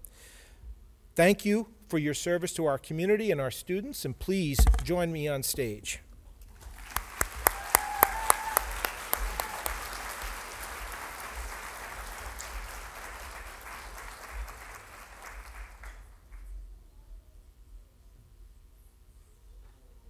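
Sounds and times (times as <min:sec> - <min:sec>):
audience applauding: 0:06.6 - 0:16.3
loud close claps: 0:06.6 - 0:16.4.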